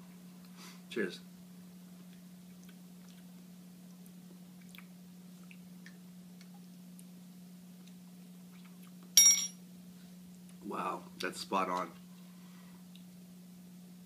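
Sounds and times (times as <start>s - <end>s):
steady low hum: 0.0s - 14.0s
mouth clicks and smacking: 4.6s - 6.6s.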